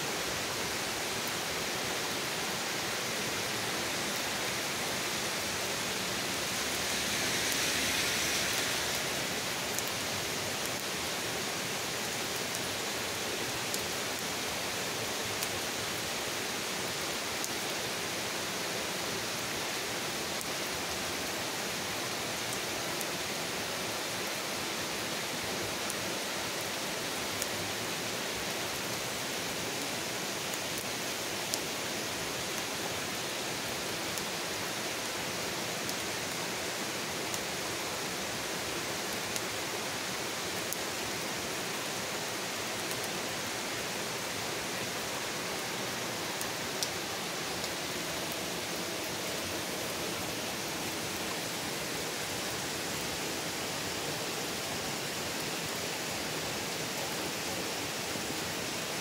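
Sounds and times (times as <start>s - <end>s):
steady rain on trees: 0.0s - 59.0s.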